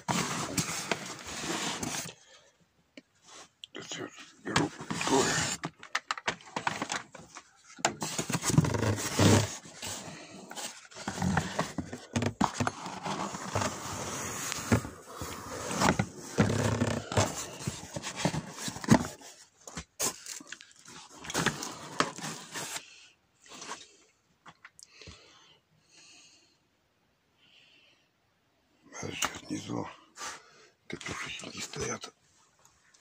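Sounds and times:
cardboard rustling and scraping: 0:00.0 - 0:02.2, 0:04.4 - 0:22.9.

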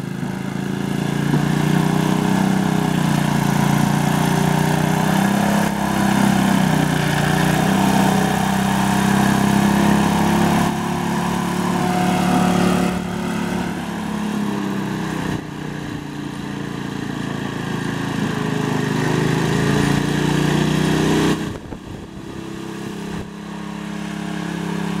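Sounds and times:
tractor engine running under load: 0:00.0 - 0:25.0.

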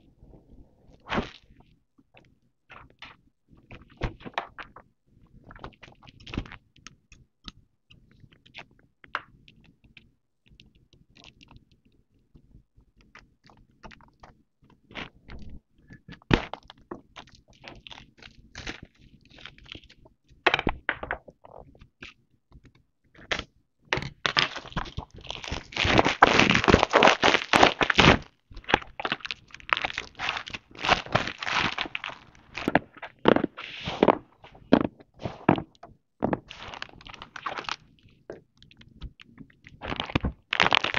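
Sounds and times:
gift wrap crinkling and tearing: 0:24.3 - 0:35.6, 0:36.3 - 0:37.8, 0:39.8 - 0:40.9.

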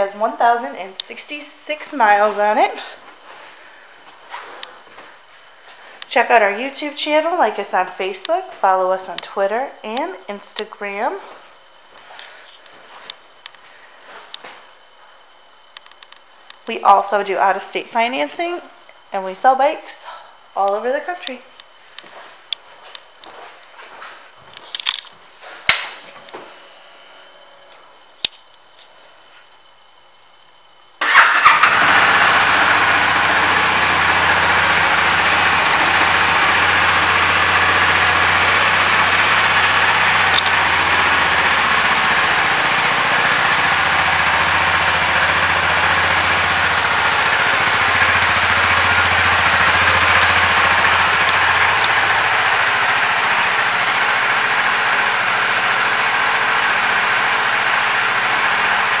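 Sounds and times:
motorcycle engine idling: 0:31.0 - 0:59.0.

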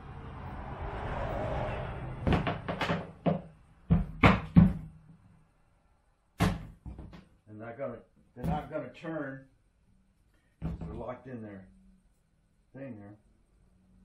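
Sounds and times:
hollow knocks on plastic: 0:02.3 - 0:05.0, 0:06.4 - 0:07.3, 0:08.4 - 0:08.7.

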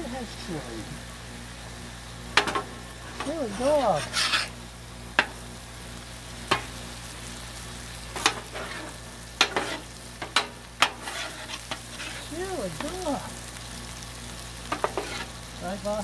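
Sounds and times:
food sizzling on a griddle: 0:00.0 - 0:16.0
metal spatula scraping griddle: 0:02.4 - 0:04.6, 0:08.1 - 0:13.1, 0:14.7 - 0:15.4.

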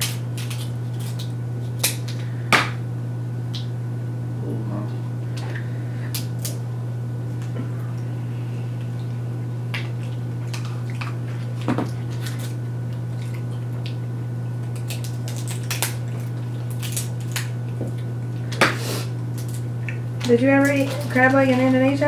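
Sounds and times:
crab shells cracking: 0:00.0 - 0:02.8, 0:06.1 - 0:06.6, 0:09.7 - 0:21.2
steady low hum: 0:00.0 - 0:22.0.

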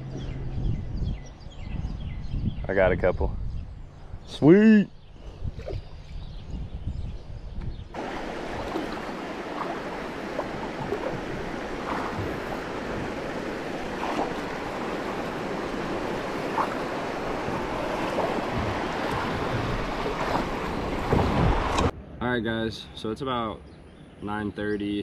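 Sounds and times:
creek water rushing over rocks: 0:08.0 - 0:21.9.

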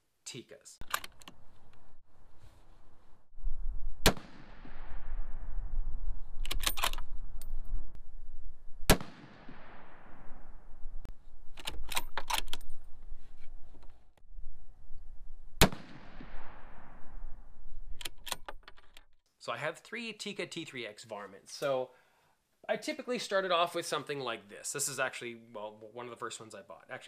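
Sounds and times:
rifle shots: 0:04.0 - 0:04.6, 0:08.9 - 0:10.1, 0:15.6 - 0:16.6.

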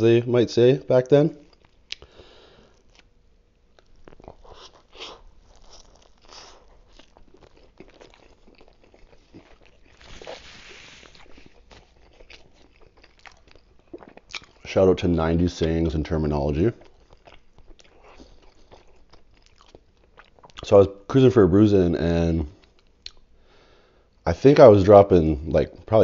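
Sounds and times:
man chewing: 0:01.4 - 0:14.7, 0:16.8 - 0:20.6
rustling: 0:09.2 - 0:12.0.

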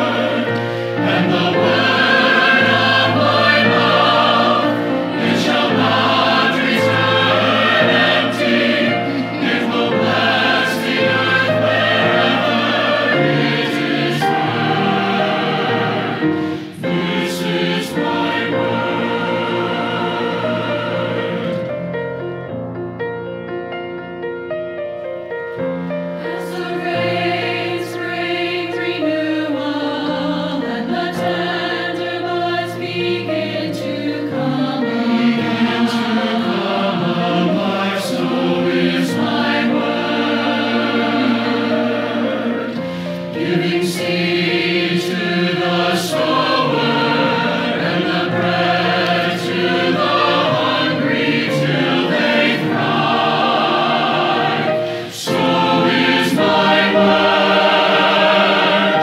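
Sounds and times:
low held accompaniment notes: 0:00.0 - 0:21.6
choir singing in harmony: 0:00.0 - 0:23.1, 0:24.2 - 0:59.0.

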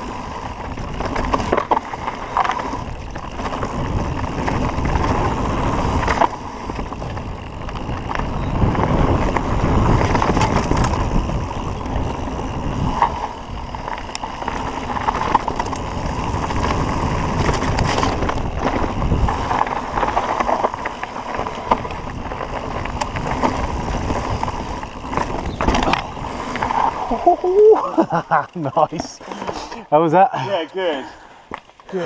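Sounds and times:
wind on microphone: 0:00.0 - 0:27.7
bike tyres rumbling over dirt: 0:00.0 - 0:29.8
bike clicks and rattles: 0:00.0 - 0:30.1, 0:31.4 - 0:32.0.

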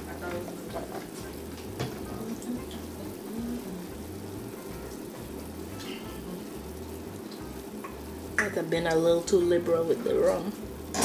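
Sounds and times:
sauce bubbling in saucepan: 0:00.0 - 0:11.0.

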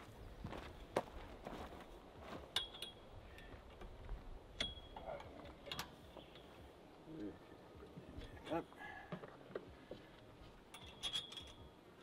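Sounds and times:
metal pole clinking on bracket: 0:02.5 - 0:03.0, 0:04.6 - 0:06.0, 0:10.7 - 0:11.8.

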